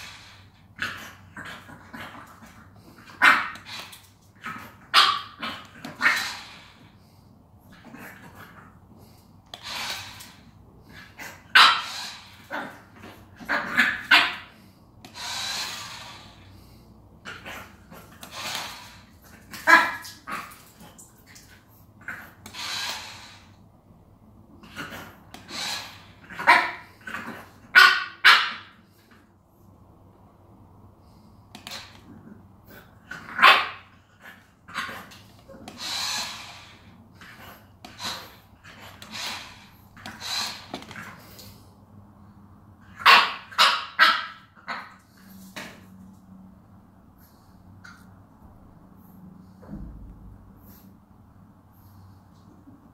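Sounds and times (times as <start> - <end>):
puppy barking in sharp yaps: 4.9 - 6.2, 27.7 - 28.7, 43.0 - 44.9.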